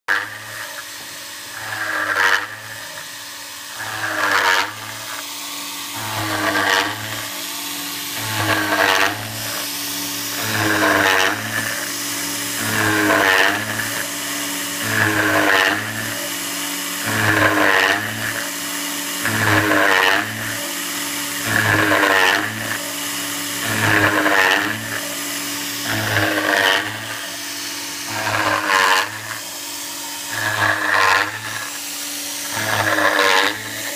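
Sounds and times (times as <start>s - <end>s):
mill cutting aluminium: 0.0s - 33.9s
steady hum: 1.5s - 17.4s.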